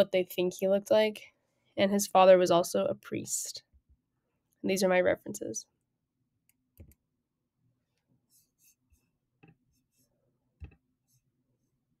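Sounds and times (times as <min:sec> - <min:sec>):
computer mouse clicks: 0:06.5 - 0:07.0.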